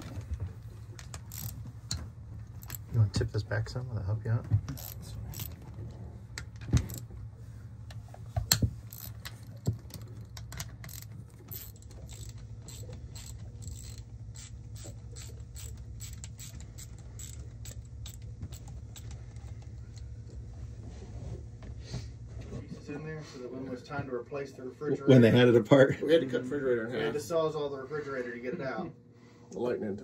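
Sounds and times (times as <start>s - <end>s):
steady low hum: 0.0s - 30.0s
socket ratchet clicking: 1.0s - 1.6s, 8.8s - 19.2s.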